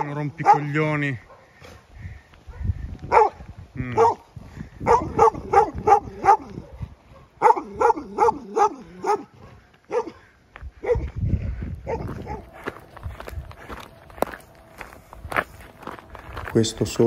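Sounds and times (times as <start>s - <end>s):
dog barking: 0.0s - 11.2s, 11.8s - 12.6s.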